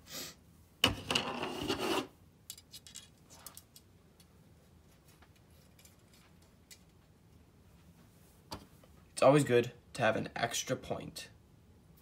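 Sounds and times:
rustling handling noise: 2.5s - 9.1s.

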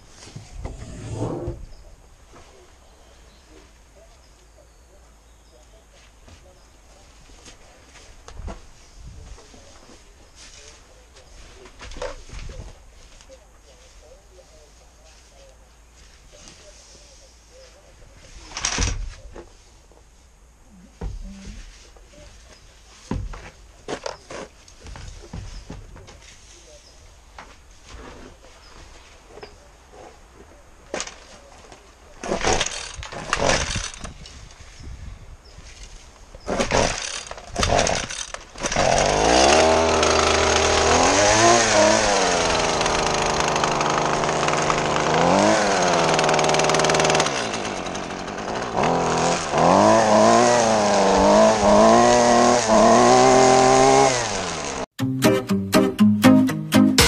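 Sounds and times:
string trimmer engine revving: 32.2s - 34.0s, 36.5s - 54.9s.

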